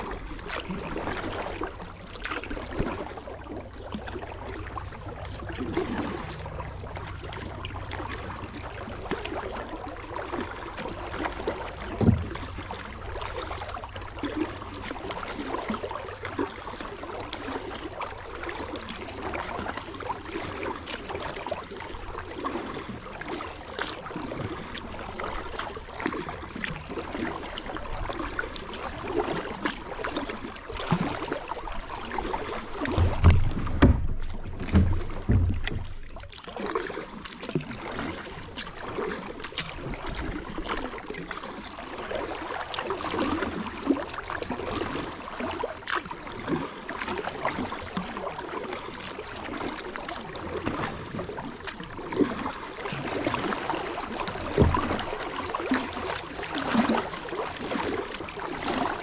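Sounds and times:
paddle dipping in water: 0:00.0 - 0:59.0
water splashing and dripping: 0:00.0 - 0:59.0
low thump: 0:11.8 - 0:12.8, 0:32.8 - 0:36.4, 0:54.5 - 0:55.1.

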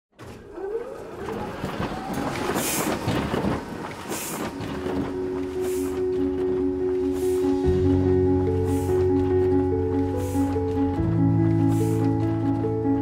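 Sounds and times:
printing press clattering: 0:00.2 - 0:13.0
soft sustained music tones: 0:03.8 - 0:13.0.

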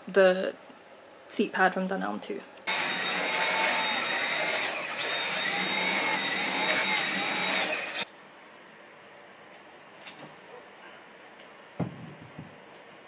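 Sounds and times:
handheld vacuum cleaner whine: 0:02.7 - 0:08.0.

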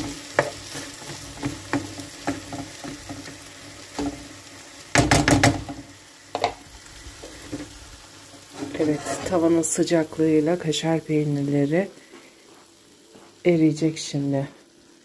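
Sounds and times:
spatula scraping frying pan: 0:00.0 - 0:04.3, 0:06.4 - 0:09.6
food sizzling softly: 0:00.0 - 0:15.0.

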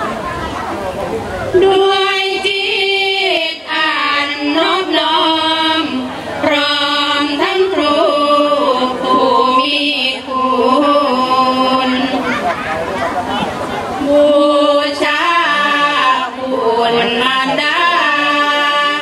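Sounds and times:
women chanting through microphones: 0:01.5 - 0:12.5, 0:13.8 - 0:19.0.

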